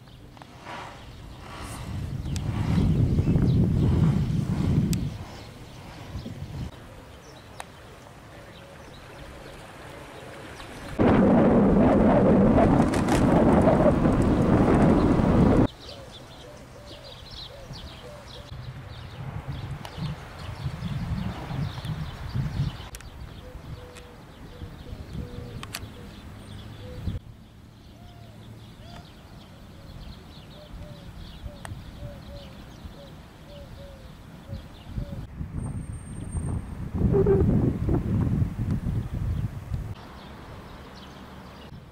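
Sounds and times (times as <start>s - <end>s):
birds chirping: 0.0s - 11.0s, 12.9s - 37.6s, 39.3s - 41.9s
faint outdoor ambience: 0.0s - 41.9s
wind buffeting on microphone: 0.5s - 6.8s, 10.8s - 15.7s, 17.3s - 26.0s, 33.8s - 40.0s
low rumble: 11.0s - 15.7s.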